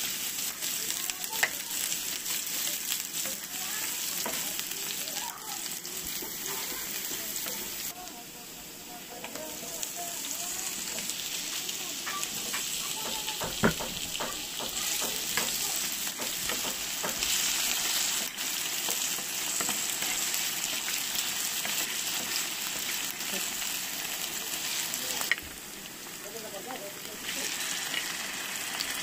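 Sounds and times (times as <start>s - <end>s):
onion sizzling in hot oil: 0.0s - 29.0s
potatoes knocking into pan: 12.0s - 17.4s.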